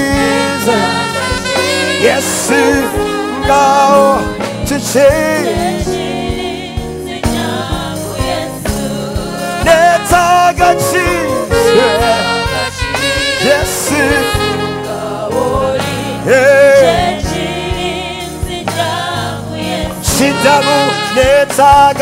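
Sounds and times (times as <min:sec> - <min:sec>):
man singing lead vocals: 0:00.0 - 0:06.3, 0:09.4 - 0:18.0, 0:19.9 - 0:22.0
instrumental chords and steady beat: 0:00.0 - 0:21.9
backing singers: 0:00.0 - 0:22.0.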